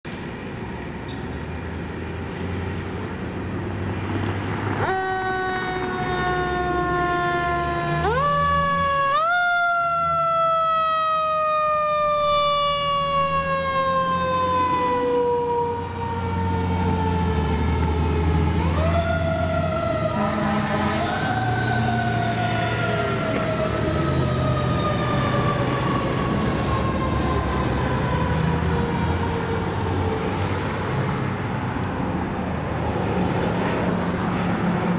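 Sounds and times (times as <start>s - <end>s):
fire truck siren: 4.7s - 31.7s.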